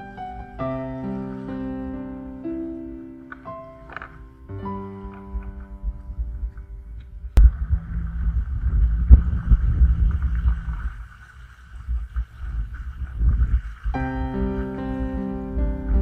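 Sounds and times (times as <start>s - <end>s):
wind buffeting microphone: 4.6s - 16.0s.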